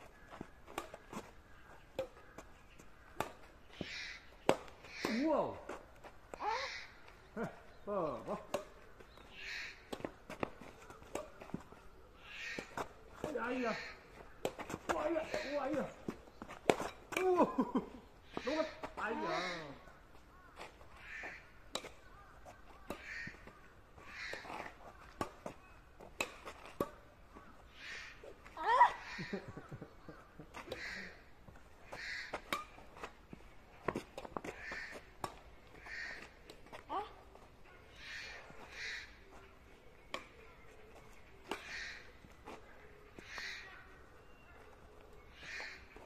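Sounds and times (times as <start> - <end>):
bird giving harsh calls: 3.6 - 5.3, 6.4 - 7.0, 9.1 - 9.9, 31.8 - 32.3, 37.9 - 39.2, 41.6 - 42.1
crow cawing: 3.7 - 4.3, 6.4 - 7.0, 9.3 - 9.9, 18.2 - 25.0, 27.4 - 28.2, 28.9 - 31.2, 31.8 - 32.4, 34.5 - 35.1, 35.8 - 36.3, 37.9 - 39.2, 41.6 - 42.0
rackets striking shuttlecock: 8.4 - 8.8, 32.3 - 33.2.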